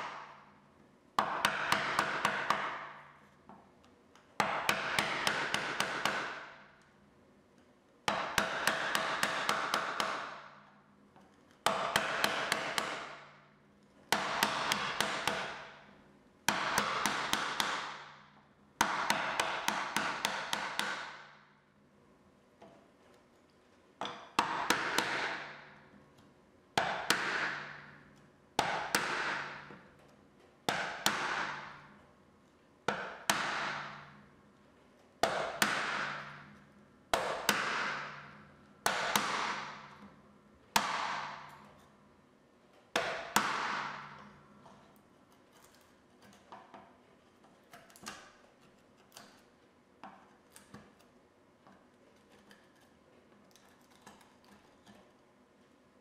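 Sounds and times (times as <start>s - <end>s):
mallet striking chisel into wood: 1.2s - 3.1s, 4.4s - 6.6s, 8.1s - 10.6s, 11.6s - 13.3s, 14.1s - 15.8s, 16.5s - 18.2s, 18.8s - 21.4s, 24.0s - 25.8s, 26.8s - 28.0s, 28.6s - 29.9s, 30.7s - 31.9s, 32.9s - 34.2s, 35.2s - 40.2s, 40.8s - 41.8s, 43.0s - 44.4s.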